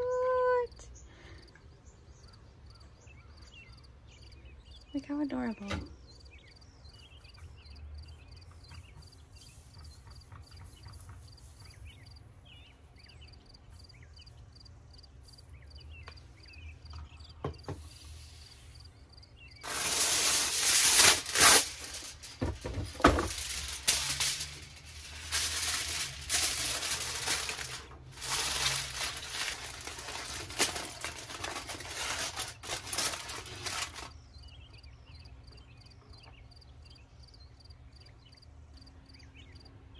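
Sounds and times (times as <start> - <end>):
aluminium foil crinkling: 19.6 - 34.2.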